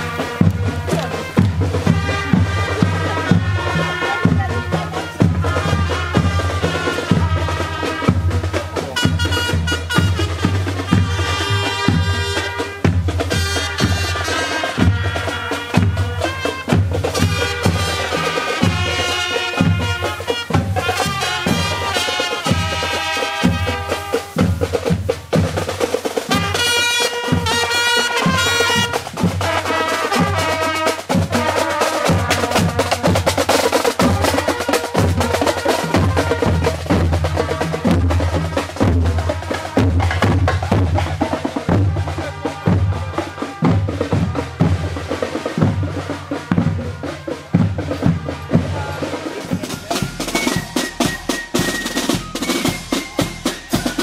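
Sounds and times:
bass drum beating: 0:00.0 - 0:14.2
snare drums: 0:00.0 - 0:54.0
trumpets playing melody: 0:00.0 - 0:54.0.

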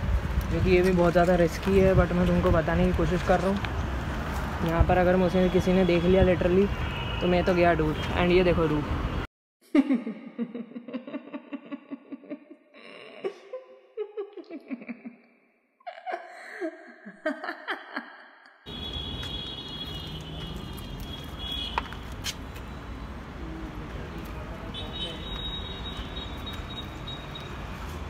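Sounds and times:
outdoor background noise: 0:00.0 - 0:09.3, 0:18.7 - 0:28.0
laughter sound effect: 0:09.6 - 0:12.7, 0:13.5 - 0:15.3, 0:15.9 - 0:18.5.

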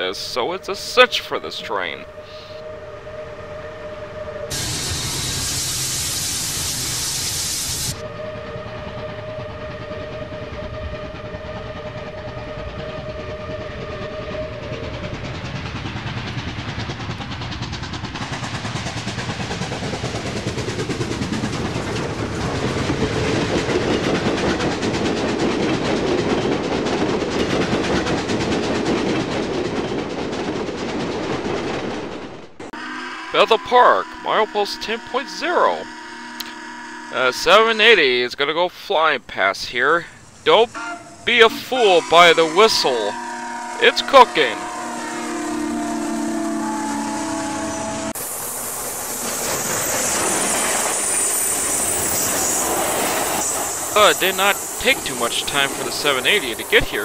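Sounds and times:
train whistle blast: 0:00.0 - 0:09.8, 0:32.8 - 0:38.4, 0:40.5 - 0:48.3, 0:53.2 - 0:57.0
steam hiss: 0:04.5 - 0:08.1, 0:48.1 - 0:57.0
train clattering on track: 0:04.5 - 0:32.8, 0:37.2 - 0:57.0.

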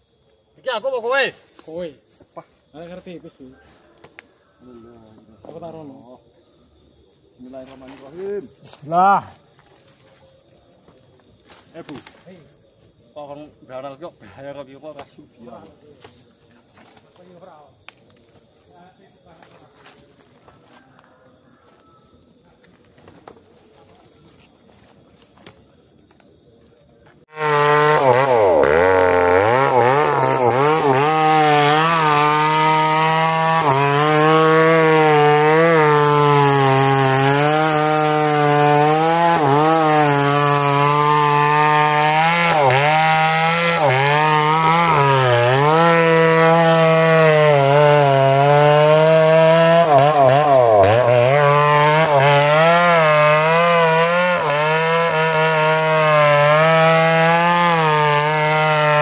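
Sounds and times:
chainsaw cutting into wood: 0:27.3 - 0:59.0.

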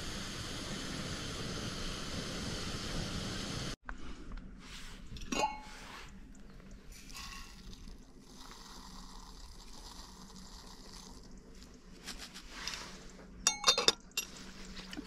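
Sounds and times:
liquid pouring: 0:06.1 - 0:12.0.

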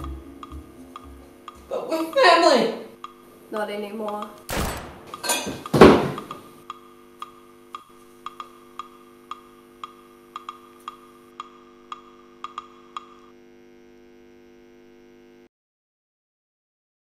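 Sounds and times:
steady electrical buzz: 0:00.0 - 0:15.5
sharp wood-block-like ticks: 0:03.0 - 0:03.3, 0:04.0 - 0:04.4, 0:06.2 - 0:13.3.

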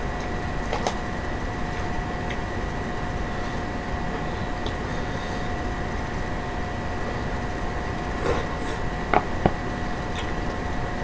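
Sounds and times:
background hum and hiss: 0:00.0 - 0:11.0.

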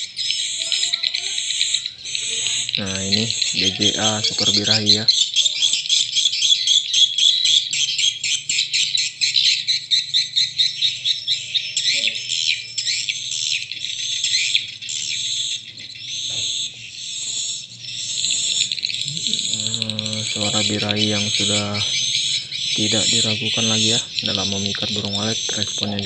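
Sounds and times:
swiftlet chirps over loudspeakers: 0:00.0 - 0:05.1, 0:16.2 - 0:26.0.

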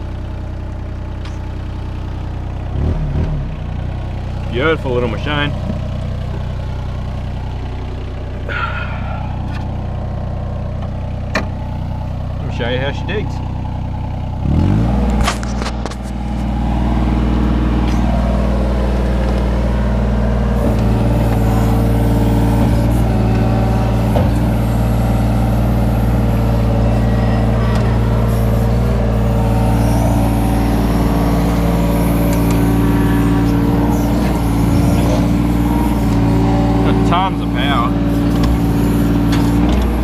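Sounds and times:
excavator diesel engine under load: 0:00.0 - 0:40.0
excavator hydraulics digging: 0:08.5 - 0:09.8, 0:15.0 - 0:16.6, 0:20.4 - 0:40.0.

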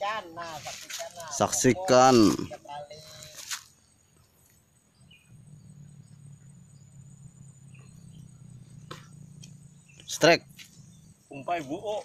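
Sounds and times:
insects chirring: 0:00.0 - 0:12.0
low steady rumble: 0:04.9 - 0:11.4.

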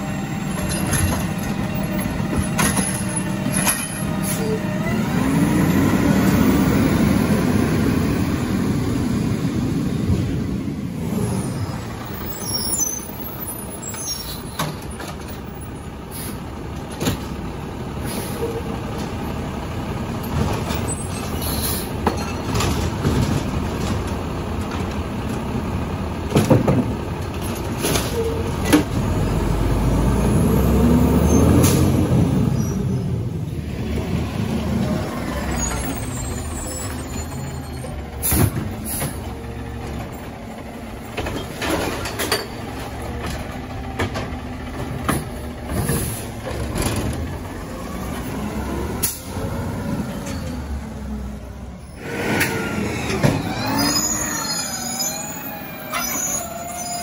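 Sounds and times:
truck diesel engine revving: 0:00.0 - 0:12.6, 0:28.5 - 0:57.0
clanks and knocks: 0:00.5 - 0:04.1, 0:26.3 - 0:28.9.

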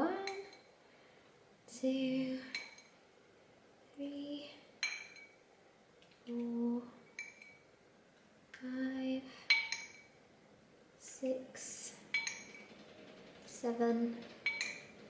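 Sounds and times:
metal spoon clinking on glass bowl: 0:04.8 - 0:05.4, 0:07.2 - 0:07.7, 0:09.5 - 0:10.2, 0:12.1 - 0:12.7, 0:14.4 - 0:15.0.

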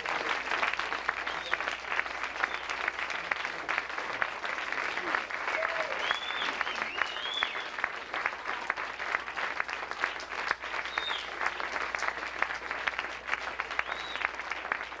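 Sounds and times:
audience applauding: 0:00.0 - 0:15.0
high whistle: 0:05.9 - 0:07.7, 0:13.8 - 0:14.2.

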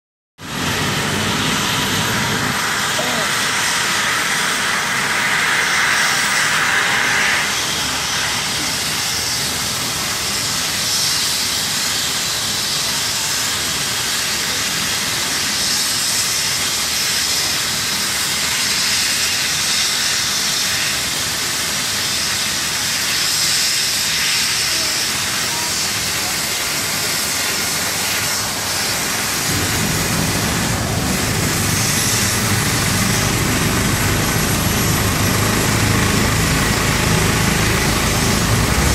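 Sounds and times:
helicopter turbine whine: 0:00.4 - 0:38.9
deep rumble: 0:29.4 - 0:38.9.

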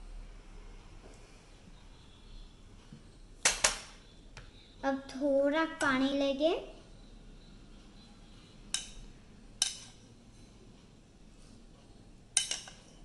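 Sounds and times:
kitchenware clinking: 0:08.7 - 0:10.1, 0:12.4 - 0:13.0.

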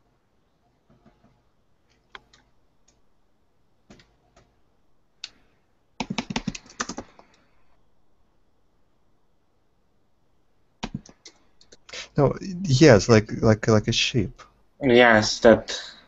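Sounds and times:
computer keyboard typing: 0:00.9 - 0:03.0, 0:03.9 - 0:04.5, 0:06.0 - 0:07.4, 0:10.8 - 0:11.8.

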